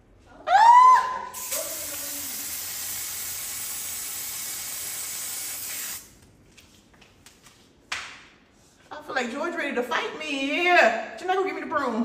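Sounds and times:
aerosol spray can hissing: 1.4 - 6.1.

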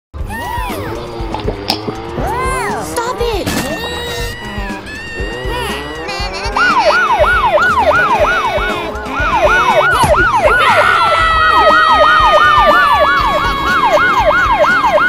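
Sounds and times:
long falling tone: 3.8 - 15.0
siren yelping: 3.8 - 15.0.

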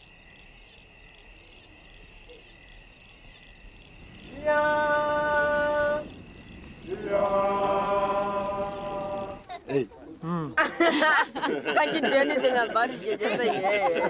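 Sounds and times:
crickets chirping: 0.0 - 14.0
long held notes: 4.2 - 9.5.

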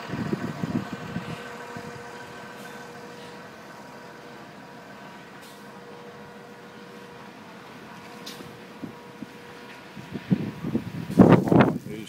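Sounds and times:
low thumps and rumbling: 0.0 - 3.3
vehicle engine idling: 0.0 - 12.0.

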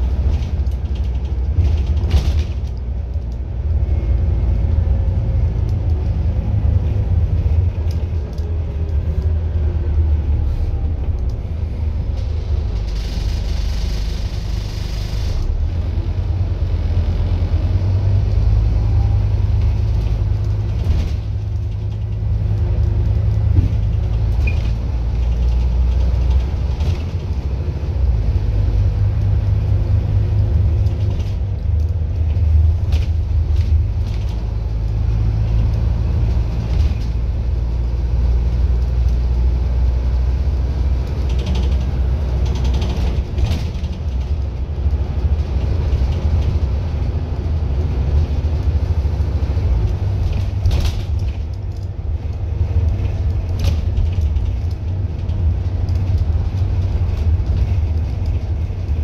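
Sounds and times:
bodywork rattles and clicks: 0.0 - 3.4, 19.6 - 27.5, 29.1 - 37.3, 40.9 - 59.0
bus diesel engine rumble: 0.0 - 59.0.

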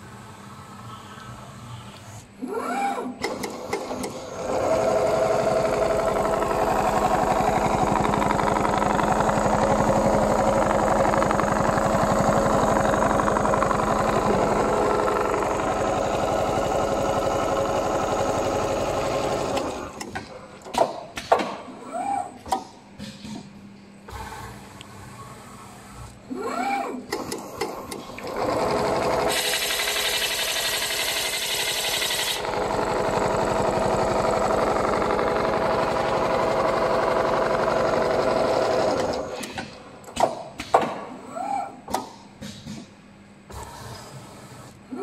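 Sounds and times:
sewing machine stitching: 3.2 - 20.2, 27.2 - 39.6.

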